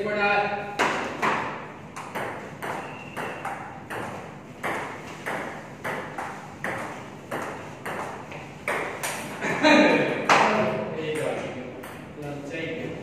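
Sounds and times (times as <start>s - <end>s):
ping pong ball bouncing on table: 0.8s - 9.2s, 10.3s - 12.1s
ping pong ball on paddles: 0.8s - 9.3s.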